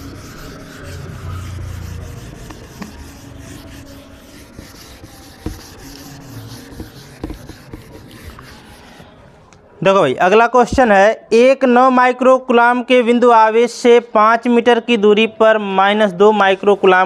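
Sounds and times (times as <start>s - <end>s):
eraser wiping a whiteboard: 0.0s - 9.1s.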